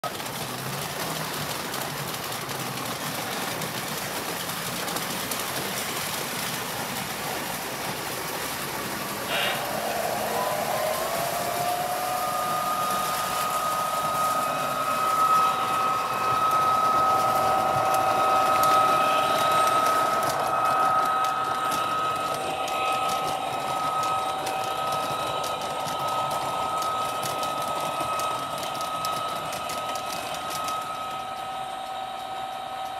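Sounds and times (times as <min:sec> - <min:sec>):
model trains clattering: 0:00.0 - 0:32.9
high two-note whine: 0:09.2 - 0:32.9.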